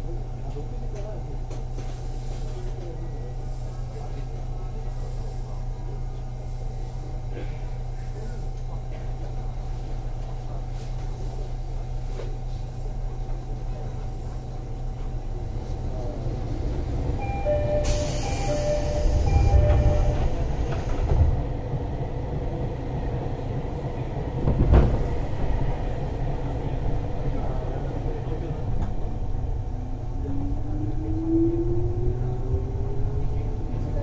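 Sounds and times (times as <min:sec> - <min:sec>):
train running gear rumble: 0:00.0 - 0:34.0
repeated beeping tones: 0:17.2 - 0:20.2.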